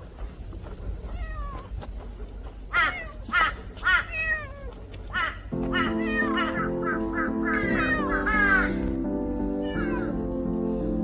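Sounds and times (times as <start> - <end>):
cat meowing: 3.9 - 4.8, 5.8 - 6.6, 7.6 - 8.8, 9.6 - 10.2
background music with held notes: 5.5 - 11.0.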